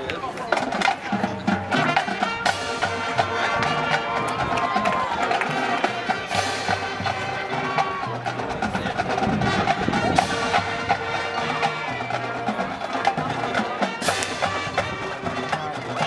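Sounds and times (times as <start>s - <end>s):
marching band playing: 0.0s - 16.0s
sharp percussion strikes: 13.9s - 16.0s.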